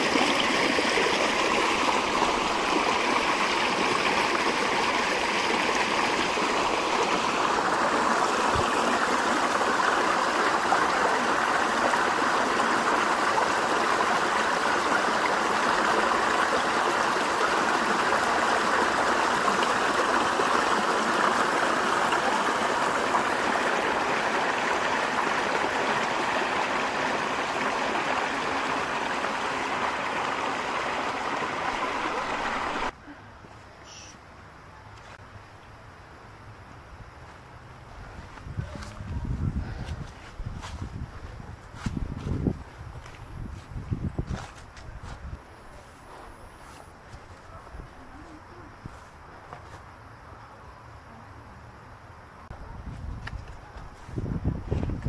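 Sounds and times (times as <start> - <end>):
river flowing: 0.0 - 33.0.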